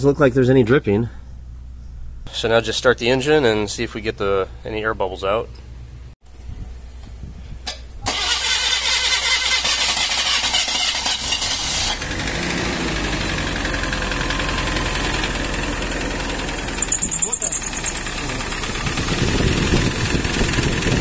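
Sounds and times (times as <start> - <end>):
car engine starting and idling: 8.0 - 21.0.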